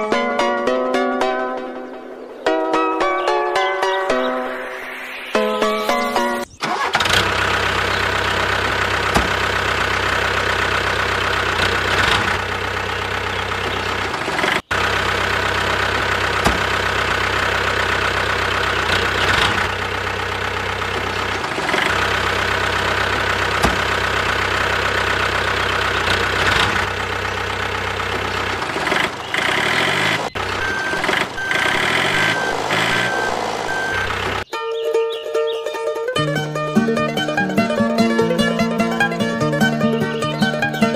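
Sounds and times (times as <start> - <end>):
motor whining and humming: 29.9 - 34.4.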